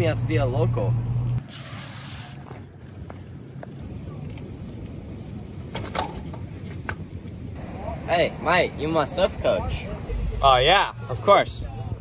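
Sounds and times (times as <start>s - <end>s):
low traffic hum: 0.0s - 12.0s.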